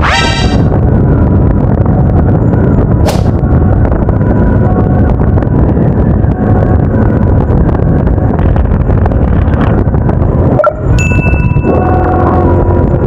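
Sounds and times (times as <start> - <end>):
motorcycle engine and road rumble: 0.0 - 13.0.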